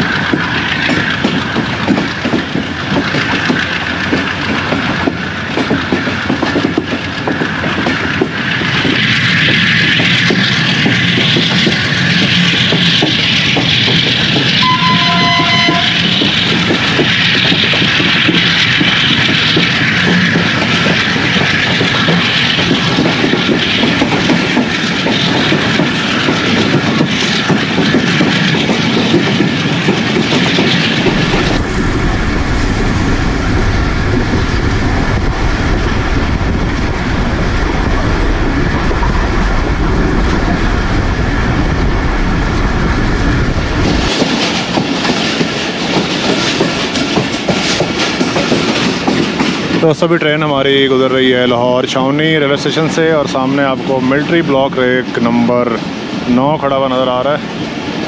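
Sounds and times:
train wheels clattering: 0.0 - 32.2, 43.8 - 58.0
train rolling noise: 0.0 - 58.0
two-note train horn: 14.6 - 16.1.

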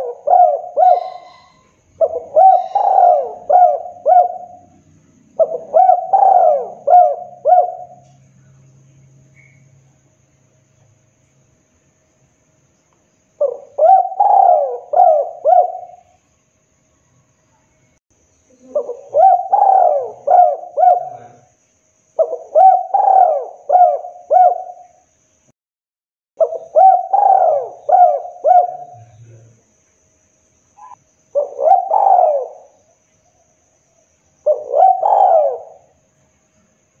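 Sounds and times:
dove cooing: 0.0 - 8.2, 13.4 - 16.2, 18.5 - 21.5, 22.2 - 25.0, 26.4 - 29.4, 30.8 - 32.8, 34.4 - 36.0.

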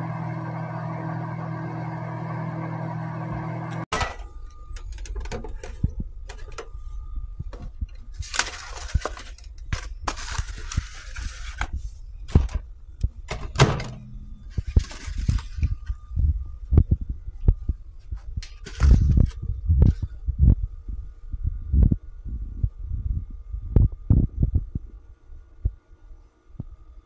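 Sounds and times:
microwave oven humming: 0.0 - 27.0
cardboard box rustling: 8.1 - 11.9, 14.5 - 15.9.

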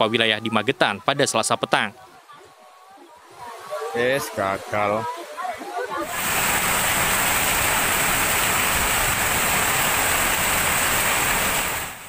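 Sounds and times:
flood water rushing: 3.2 - 12.0.

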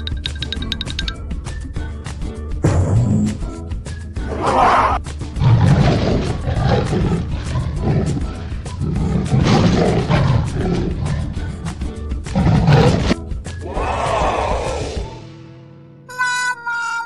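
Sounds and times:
children's background music: 0.0 - 17.0
leopard growling and roaring: 4.3 - 15.2.

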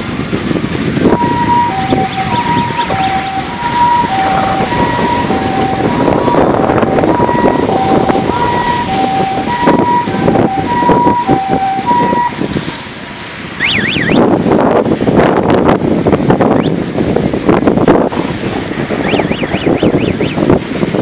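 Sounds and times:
wind rushing on microphone: 0.0 - 21.0
two-tone hi-lo siren: 1.0 - 12.9, 13.6 - 14.3, 19.0 - 20.4.

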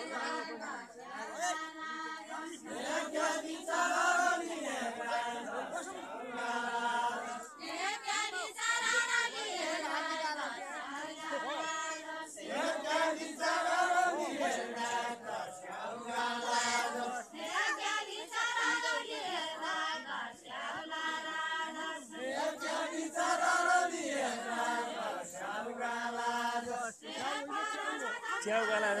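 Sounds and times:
group singing without instruments: 0.0 - 29.0.

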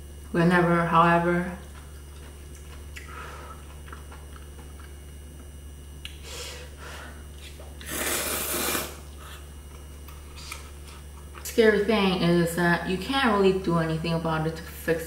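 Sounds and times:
faint eating and handling noises: 0.0 - 14.9
steady low hum: 0.0 - 15.0
person slurping noodles: 7.8 - 9.4.

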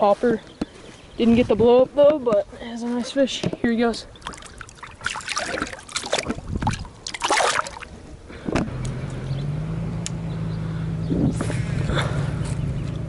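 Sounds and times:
water splashing and sloshing: 2.9 - 8.2
low engine hum: 6.2 - 13.0.

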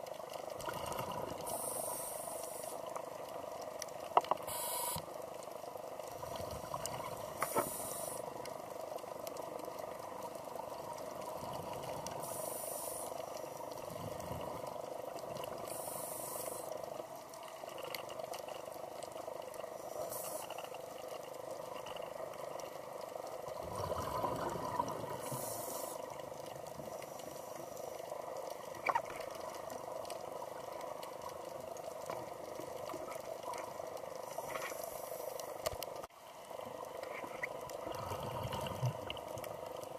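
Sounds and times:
exhaled bubbles hissing: 0.0 - 3.0, 6.1 - 8.6, 11.1 - 16.7, 23.4 - 29.3, 36.6 - 39.9
steady underwater hiss: 0.0 - 39.9.

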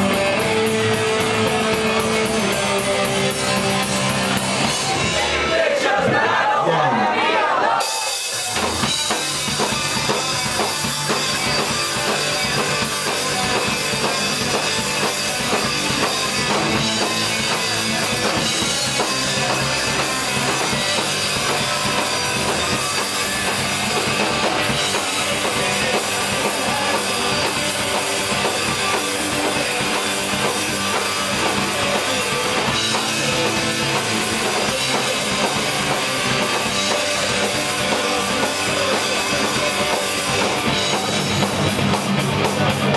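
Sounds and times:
distorted electric guitars: 0.0 - 7.1, 7.8 - 42.9
bass guitar: 0.0 - 42.9
drum kit: 0.0 - 42.9.

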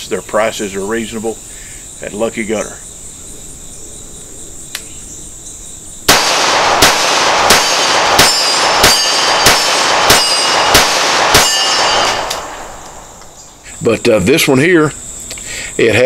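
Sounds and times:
pistol shots with metallic ring: 6.1 - 13.0.

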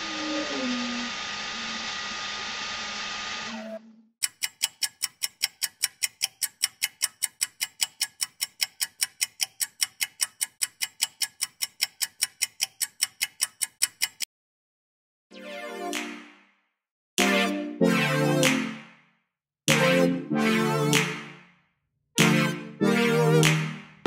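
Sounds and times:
clock ticking: 4.2 - 14.3, 15.9 - 16.3, 19.7 - 20.1, 20.9 - 21.2, 22.2 - 23.8.

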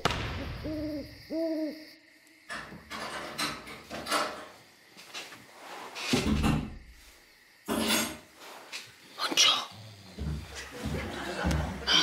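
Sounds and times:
owl hooting: 0.0 - 2.0
knocks and clunks: 6.1 - 6.8.

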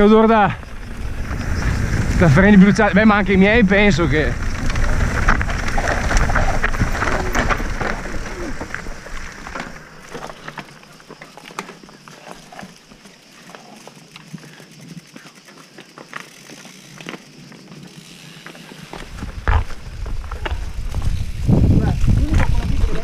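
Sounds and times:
low rush: 0.0 - 10.1
bike rattling on stony trail: 0.0 - 23.0.

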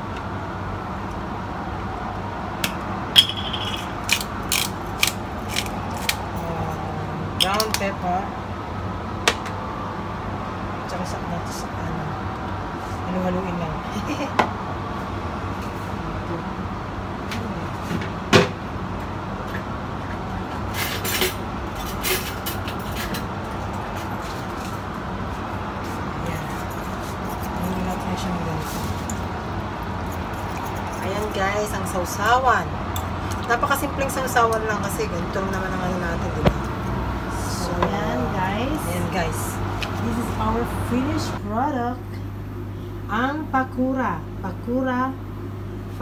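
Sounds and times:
steady rumbling background noise: 0.0 - 46.0
pepper grinder grinding clicks: 3.6 - 6.2.

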